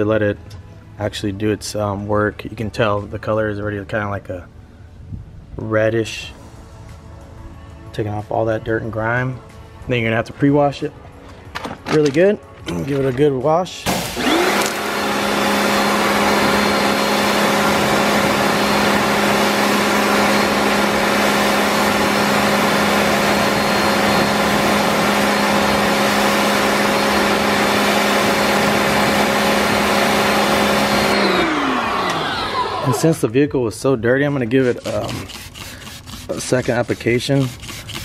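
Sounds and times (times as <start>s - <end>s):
pressure washer motor hum: 13.9s - 33.2s, 34.8s - 38.0s.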